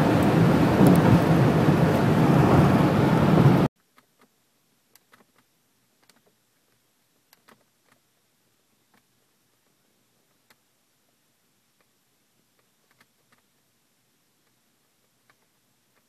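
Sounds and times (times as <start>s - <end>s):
wind road and engine noise in car: 0.0s - 3.7s.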